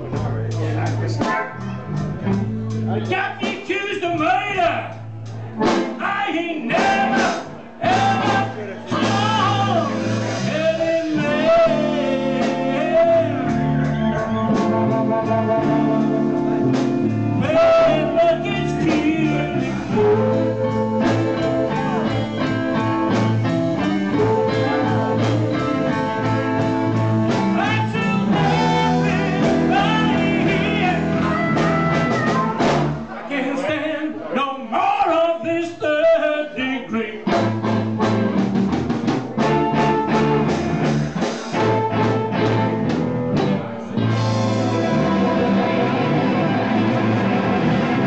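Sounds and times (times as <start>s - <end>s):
bass: 0.0s - 48.0s
drums: 0.0s - 48.0s
electric guitar: 6.7s - 33.2s, 37.2s - 48.0s.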